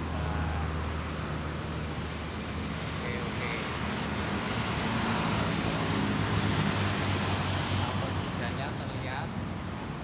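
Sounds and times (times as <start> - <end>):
car passing: 2.7 - 9.3
motorbikes passing: 2.8 - 9.3.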